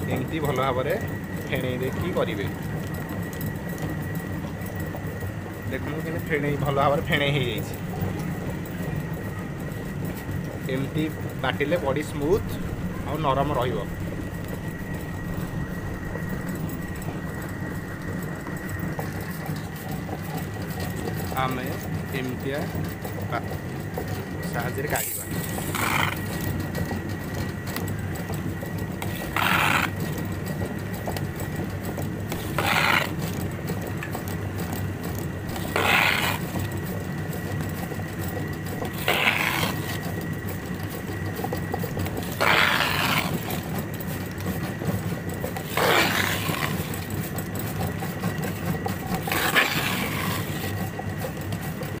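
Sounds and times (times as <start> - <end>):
wet grinder motor hum: 10.1 - 26.9, 27.8 - 52.0
paste scraping: 29.0 - 30.0, 32.3 - 33.2, 35.5 - 36.6, 49.1 - 50.7.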